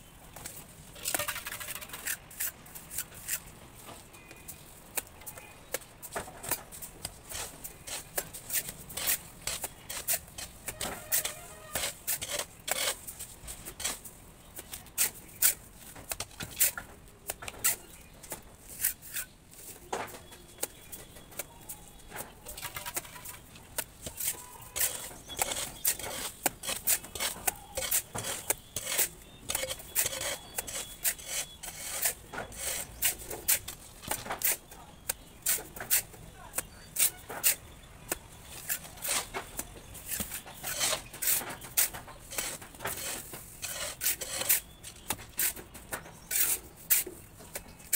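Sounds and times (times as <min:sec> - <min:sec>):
trowel tapping and scraping mortar: 0:04.3 - 0:13.0, 0:19.9 - 0:47.9.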